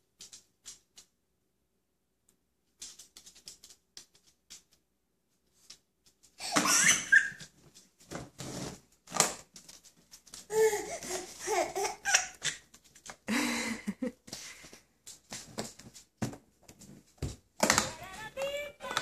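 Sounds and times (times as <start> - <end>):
baby laughing: 6.4 - 7.5, 10.5 - 12.6.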